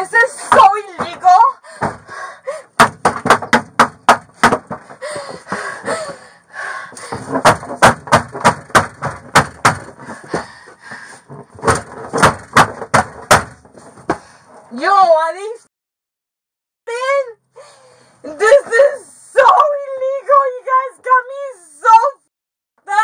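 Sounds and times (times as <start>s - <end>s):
woman's voice: 0.0s - 1.7s, 14.7s - 15.6s, 16.9s - 17.4s, 18.2s - 22.3s
loud bangs inside car: 2.8s - 4.8s, 7.4s - 10.0s, 11.6s - 13.6s.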